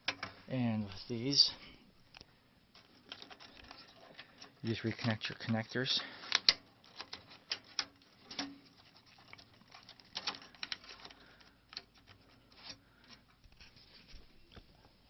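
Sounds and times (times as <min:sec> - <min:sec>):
cable connectors clicking and rattling: 0:00.0 - 0:00.5, 0:02.1 - 0:14.7.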